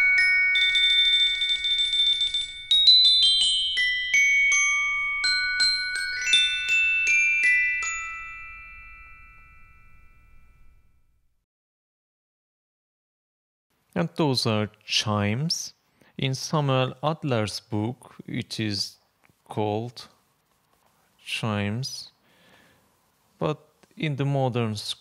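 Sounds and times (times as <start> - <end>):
glockenspiel playing: 0.0 - 11.0.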